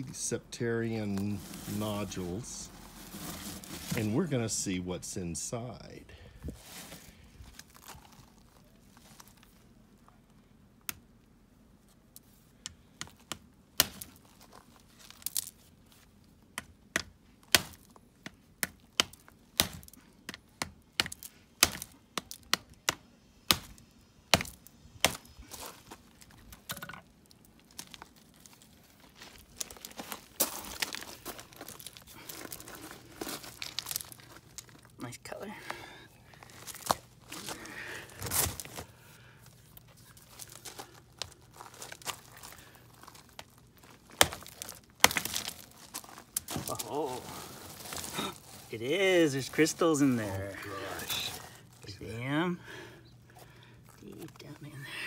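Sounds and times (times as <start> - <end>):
stone pieces crunching over gravel: 0.8 - 4.4, 6.4 - 9.7, 13.8 - 15.8, 24.4 - 54.6.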